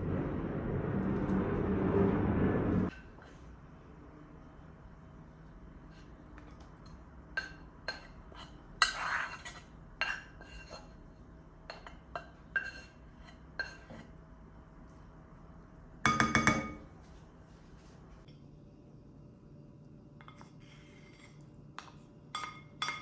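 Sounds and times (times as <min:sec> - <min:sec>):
spatula scraping frying pan: 0:07.9 - 0:11.1, 0:11.7 - 0:14.2
glass bowl clinking: 0:16.1 - 0:16.9.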